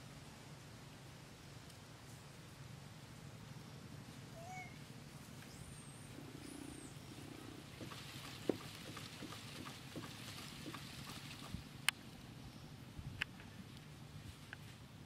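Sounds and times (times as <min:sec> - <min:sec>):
light clicks and rustles: 0:13.2 - 0:14.9.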